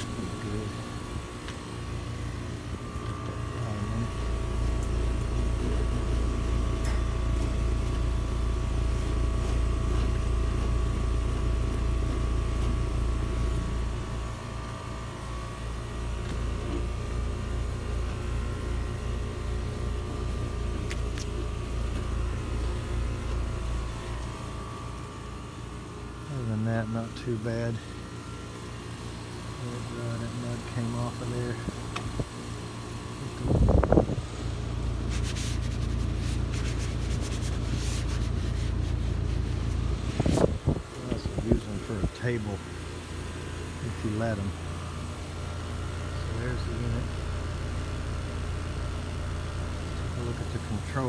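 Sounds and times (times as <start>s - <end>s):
hvac system humming: 0.0s - 51.0s.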